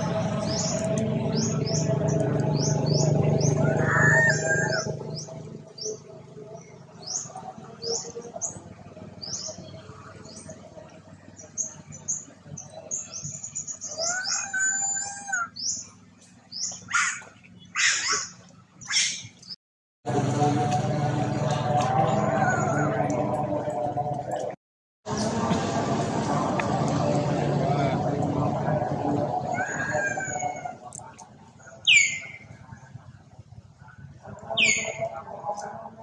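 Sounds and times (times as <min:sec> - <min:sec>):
low rumble: 0:20.1 - 0:31.8.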